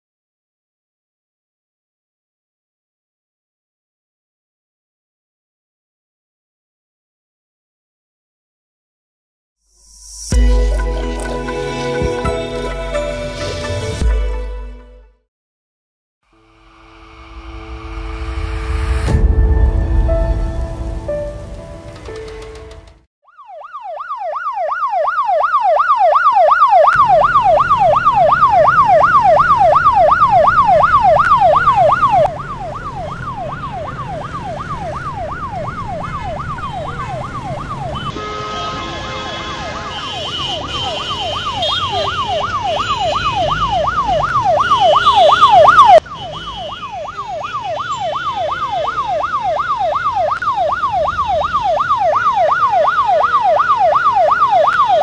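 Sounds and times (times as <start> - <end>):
road traffic rumble: 10.3 - 14.8, 16.4 - 23.1, 24.4 - 55.0
ambulance siren wailing: 23.2 - 55.0.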